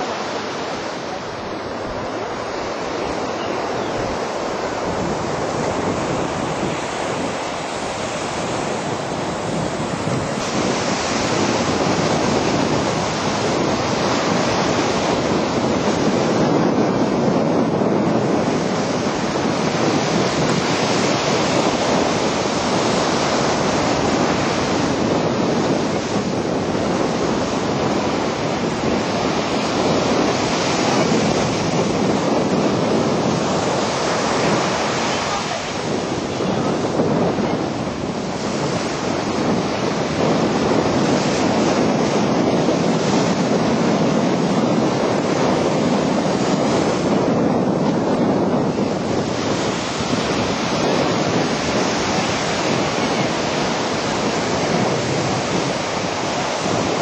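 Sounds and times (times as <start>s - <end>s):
surf breaking on beach: 0.0s - 57.0s
wind buffeting microphone: 0.0s - 57.0s.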